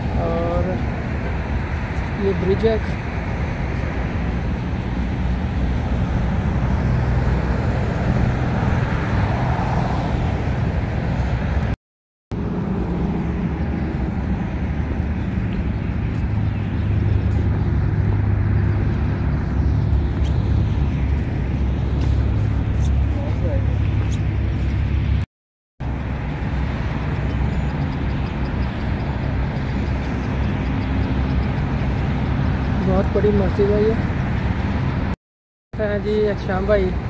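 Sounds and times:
low outdoor rumble: 0:00.0 - 0:25.2.

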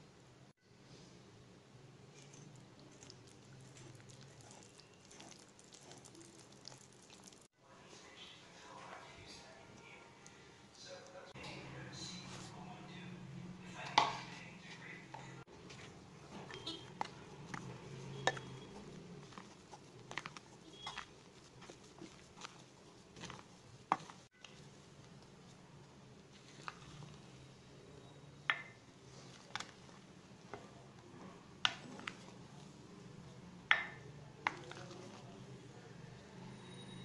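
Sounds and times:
spatula scraping glass bowl: 0:16.3 - 0:22.6.

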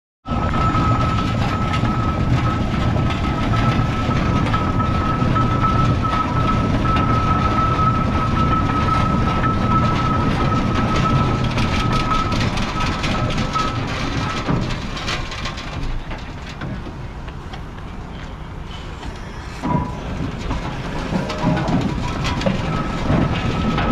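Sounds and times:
steam engine rumbling: 0:00.3 - 0:23.9.

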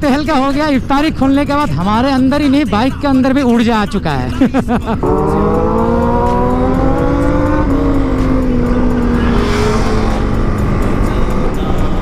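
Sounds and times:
motorcycle engine: 0:05.0 - 0:12.0
wind rumble on microphone: 0:08.0 - 0:12.0.

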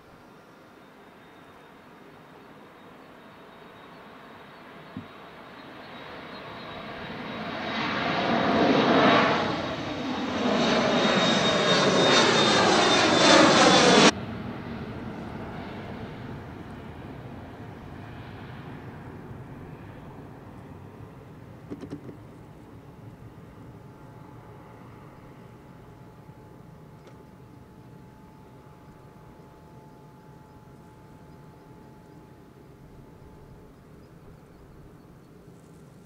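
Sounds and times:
jet engines roaring overhead: 0:04.1 - 0:29.4.

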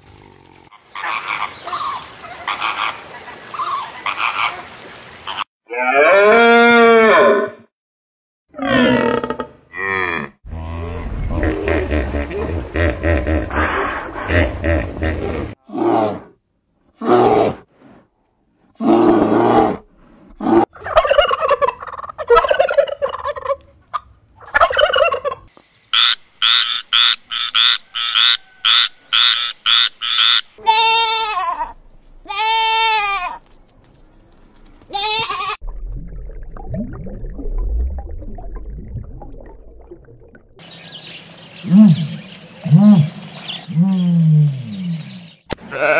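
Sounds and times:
low rumbling noise: 0:35.6 - 0:40.6.

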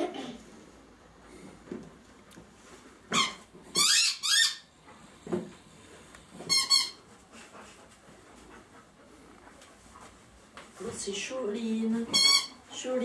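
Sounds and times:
squeaky dog toy squealing: 0:03.1 - 0:04.7, 0:06.5 - 0:07.0, 0:12.1 - 0:12.6.

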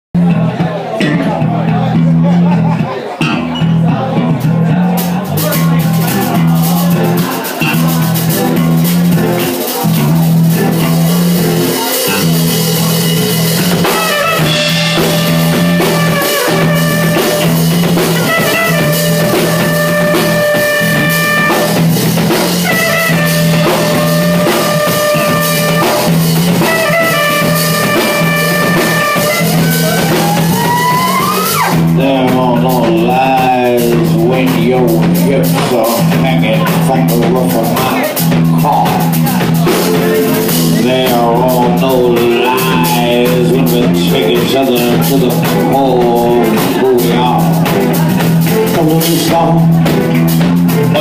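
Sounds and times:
instrumental band music: 0:00.2 - 0:51.0
long held chords: 0:10.1 - 0:32.5.

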